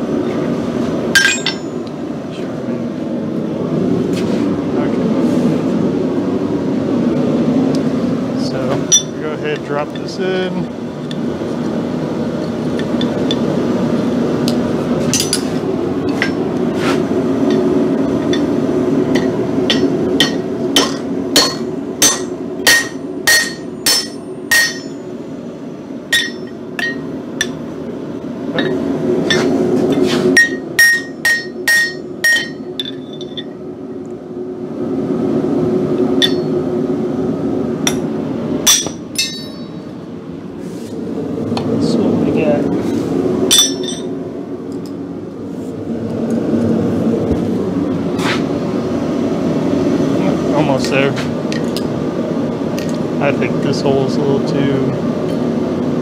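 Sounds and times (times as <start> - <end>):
hammer striking metal: 1.2 - 1.8, 19.2 - 25.0, 26.1 - 27.6, 30.4 - 33.5, 36.2 - 36.5, 38.6 - 39.8, 43.5 - 44.1.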